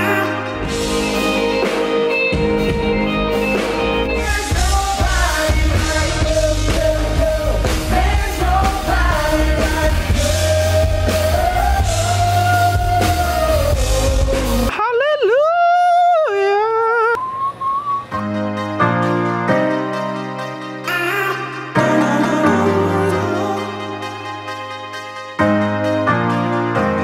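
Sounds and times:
bass guitar: 0:00.0 - 0:14.7
keyboard chords: 0:00.0 - 0:14.7, 0:17.2 - 0:27.0
people singing: 0:04.2 - 0:14.7.

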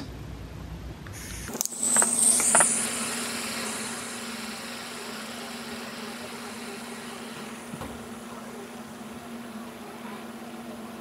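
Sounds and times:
gas hissing: 0:01.1 - 0:09.5.

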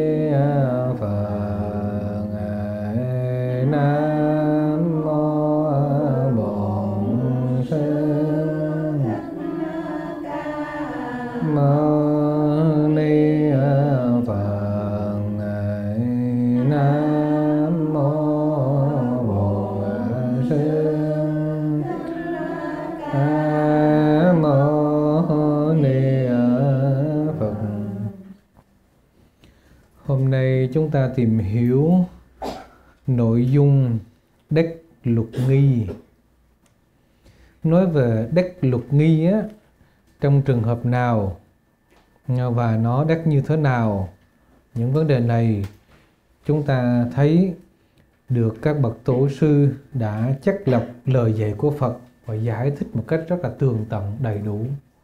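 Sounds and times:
monk chanting: 0:00.0 - 0:28.4, 0:30.0 - 0:32.2, 0:40.2 - 0:41.4, 0:46.5 - 0:47.6, 0:48.3 - 0:54.8.

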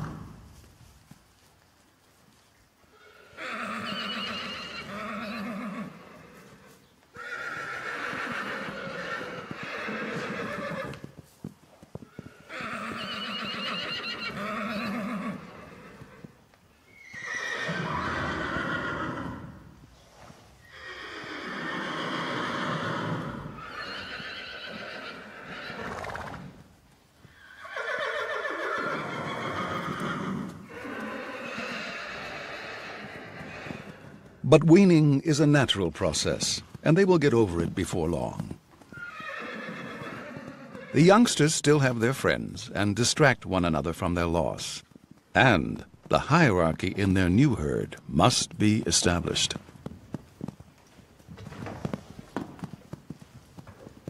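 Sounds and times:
horses neighing: 0:00.0 - 0:00.4, 0:02.9 - 0:11.2, 0:12.0 - 0:19.7, 0:20.6 - 0:42.6.

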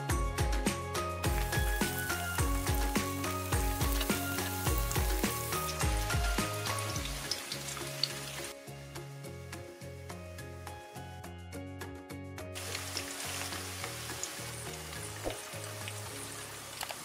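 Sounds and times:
background music with a beat: 0:00.0 - 0:12.5
squash sizzling in oil: 0:01.2 - 0:11.3, 0:12.5 - 0:17.0.

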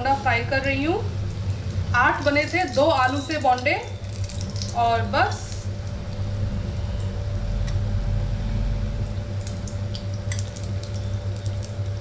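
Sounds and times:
food deep-frying in oil: 0:00.0 - 0:12.0
low steady hum: 0:00.0 - 0:12.0
sharp crackles of frying: 0:00.6 - 0:06.3, 0:09.2 - 0:12.0.

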